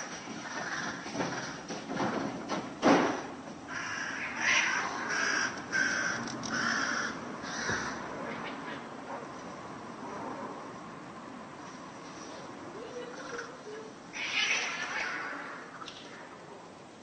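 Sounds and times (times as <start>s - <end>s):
crow cawing: 0.4s - 1.7s, 3.7s - 8.1s.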